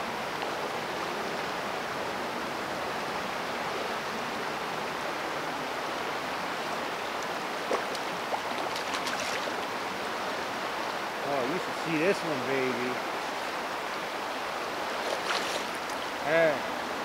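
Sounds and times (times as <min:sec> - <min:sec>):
creek water flowing: 0:00.0 - 0:17.0.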